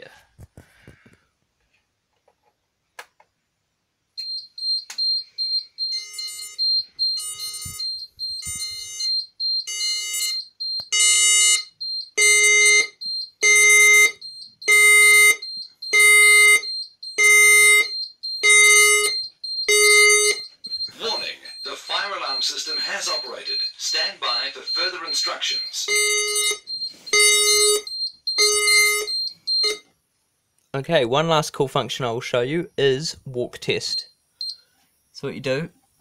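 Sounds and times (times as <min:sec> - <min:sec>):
repeating alert tone from speaker: 0:04.2 - 0:29.8
high rapidly pulsing alarm beep: 0:04.2 - 0:29.9, 0:32.3 - 0:34.6.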